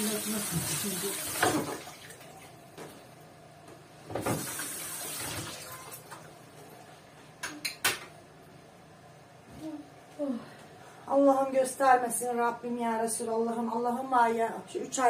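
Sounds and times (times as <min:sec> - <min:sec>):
tap running into sink: 0:00.5 - 0:01.8, 0:04.1 - 0:05.4.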